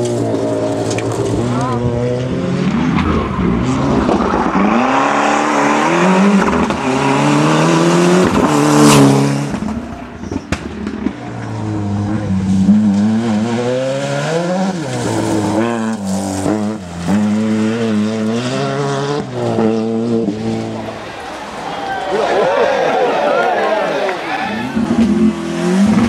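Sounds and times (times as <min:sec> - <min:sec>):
rally car engine accelerating: 0:00.0 - 0:21.6, 0:23.6 - 0:26.0
sharp crack: 0:08.3 - 0:11.5.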